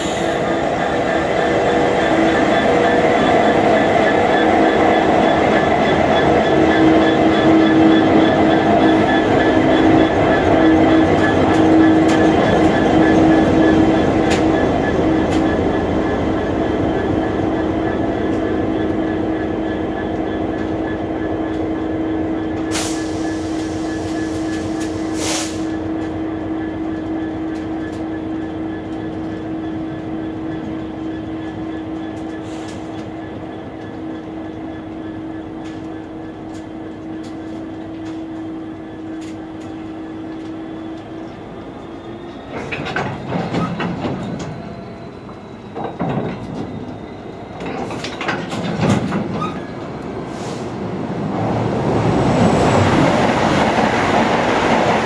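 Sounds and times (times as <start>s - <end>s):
diesel locomotive engine hum: 0.0s - 55.0s
wheels clicking over rail joints: 45.3s - 49.8s.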